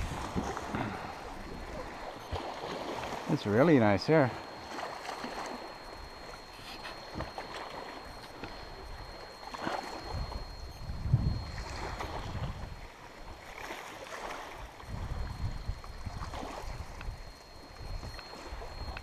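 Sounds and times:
wind buffeting microphone: 0.0s - 2.5s, 8.1s - 13.0s, 14.7s - 19.0s
paddle strokes swishing in water: 0.0s - 10.4s.

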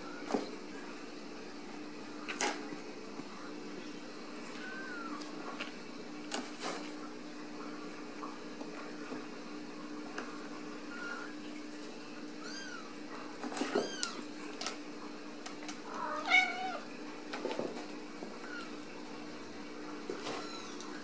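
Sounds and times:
kittens mewing: 15.9s - 16.9s.

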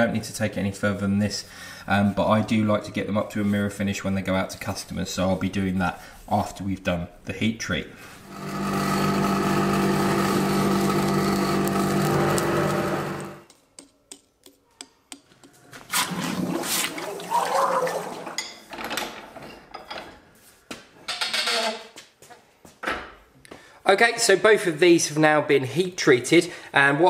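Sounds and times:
electric blower humming: 8.2s - 13.4s.

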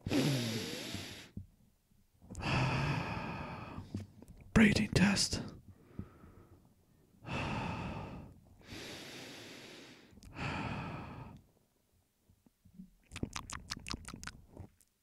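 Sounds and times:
person breathing heavily: 0.0s - 1.4s, 2.3s - 4.0s, 5.7s - 6.6s, 7.2s - 11.4s.

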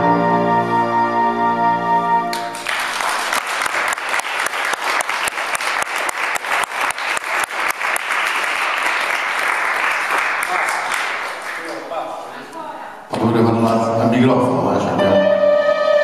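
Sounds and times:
held music chord: 0.0s - 2.6s, 14.8s - 16.0s
audience applause: 2.3s - 12.0s.

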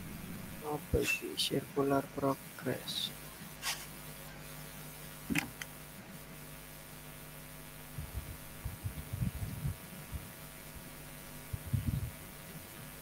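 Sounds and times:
faint muffled low thumps: 0.0s - 1.0s
low electrical hum: 0.0s - 13.0s.

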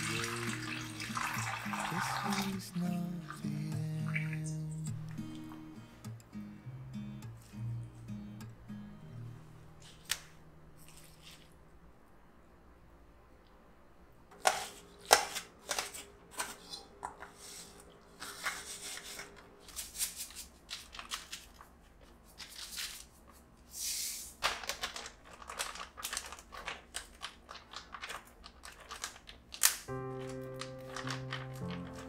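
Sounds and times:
plastic freezer bag crinkling: 14.4s - 23.5s, 24.3s - 32.0s.

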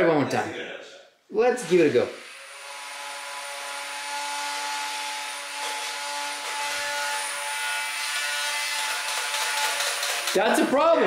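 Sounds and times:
flywheel motors whining: 8.8s - 10.5s.

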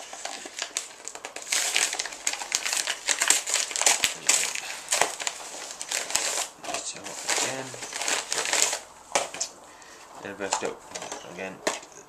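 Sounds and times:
padded mailer crinkling: 0.0s - 9.6s.

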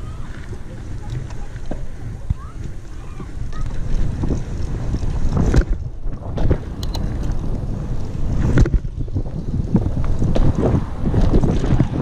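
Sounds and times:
bike knocks and rattles: 0.0s - 12.0s
wind buffeting microphone: 0.0s - 12.0s.

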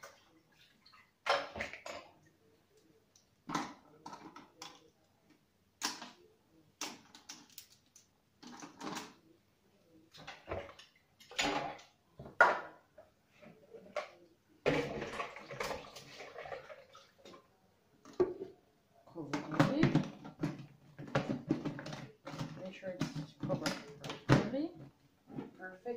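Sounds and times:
plastic bottles clicking and clattering: 1.2s - 2.2s, 3.4s - 4.9s, 6.8s - 9.2s, 10.2s - 12.8s, 13.8s - 17.4s, 19.2s - 24.6s.

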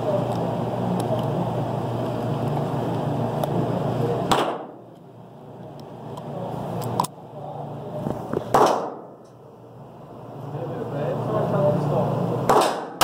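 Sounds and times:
loud gunshots: 4.3s - 4.8s, 8.5s - 9.1s, 12.5s - 13.0s.

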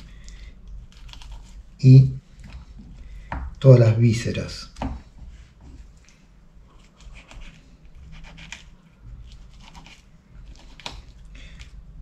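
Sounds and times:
knife scraping fish: 6.8s - 11.2s.

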